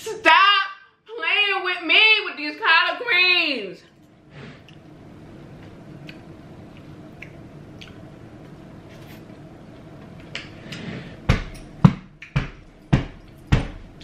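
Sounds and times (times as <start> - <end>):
wet mouth clicks: 6.0 - 8.0
chewing greens: 6.0 - 8.1
heavy thumps: 11.2 - 14.0.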